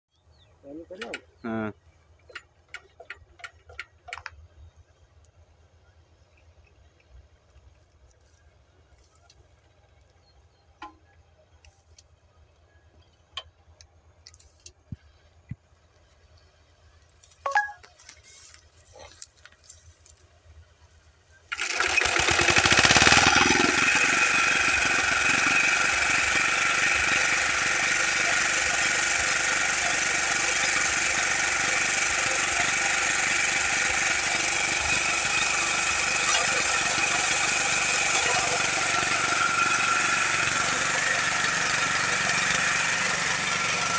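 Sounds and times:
small engine running loudly: 21.5s - 43.9s.

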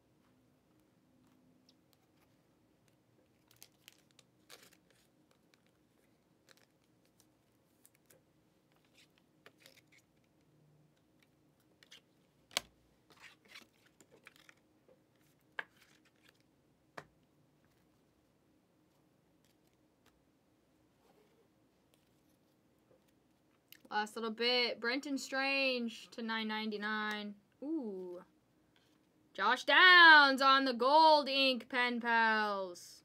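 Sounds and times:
trading cards rustling and clicking: 1.2s - 16.5s.

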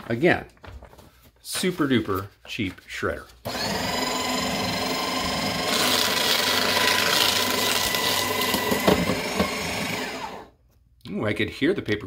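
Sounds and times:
paper shredder motor whine: 3.4s - 10.5s
paper and clips being shredded: 3.5s - 10.4s.

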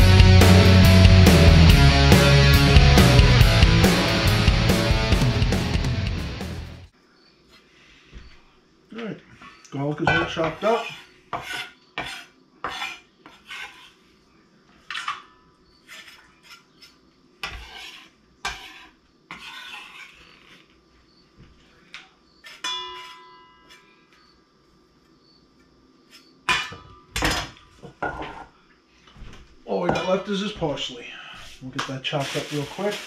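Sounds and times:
knife scraping on wooden board: 10.4s - 14.0s, 15.8s - 20.8s, 22.4s - 24.0s.

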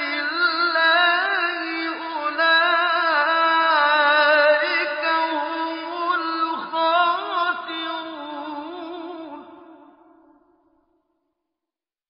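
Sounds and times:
man chanting melodically: 0.0s - 9.6s.

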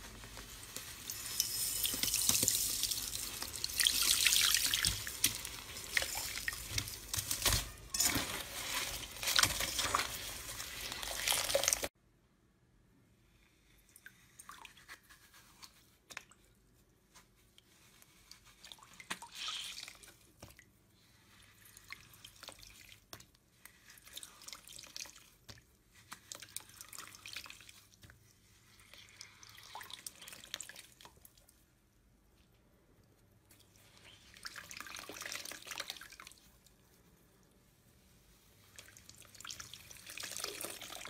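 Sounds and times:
slime squelching and crackling: 2.0s - 11.9s.

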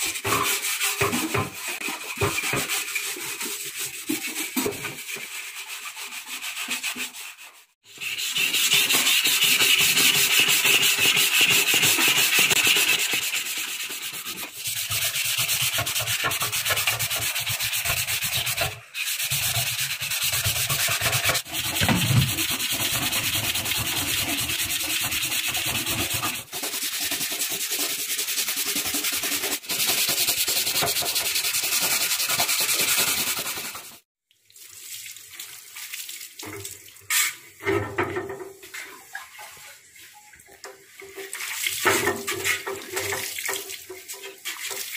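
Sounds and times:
steel wool scrubbing metal: 0.0s - 34.0s.

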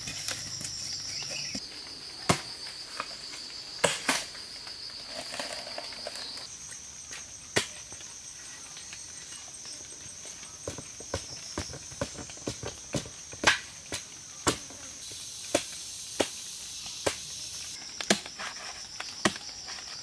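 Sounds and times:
insects droning: 0.0s - 20.0s
machete chopping bamboo: 2.3s - 2.5s, 3.8s - 4.3s, 11.0s - 14.8s, 15.5s - 17.3s, 18.0s - 19.7s.

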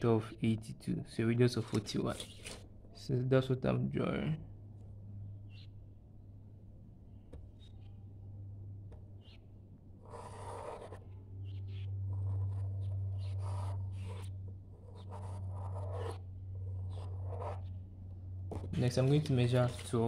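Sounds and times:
steady low hum: 0.0s - 20.0s
pencil scratching on paper: 10.0s - 17.7s.

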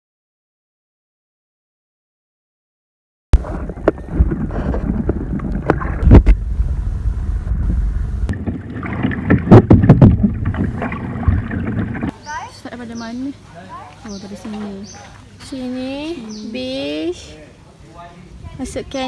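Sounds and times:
paddle knocks and splashes: 3.4s - 6.5s, 7.3s - 12.1s
wind buffeting microphone: 3.4s - 12.1s.

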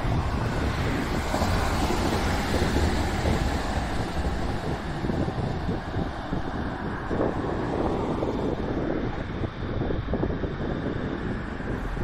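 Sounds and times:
electric train passing: 0.0s - 6.2s
wind buffeting microphone: 0.0s - 12.0s.

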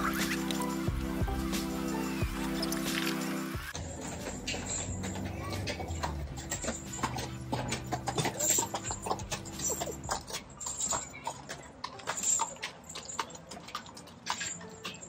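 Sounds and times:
horse hooves clip-clopping: 0.0s - 15.0s.

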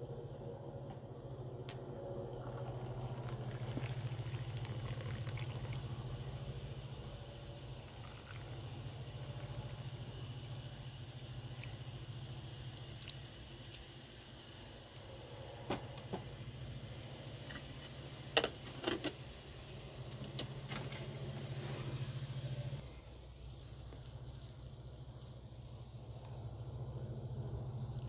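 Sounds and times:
steady low hum: 0.0s - 28.0s
tea pouring into glass cups: 1.7s - 14.1s
hot water pouring from kettle: 1.7s - 22.0s.

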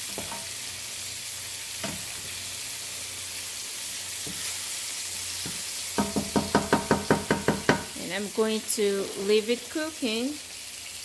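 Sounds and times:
meat sizzling in a frying pan: 0.0s - 11.0s
wooden spoon scraping a pan: 4.1s - 5.8s.

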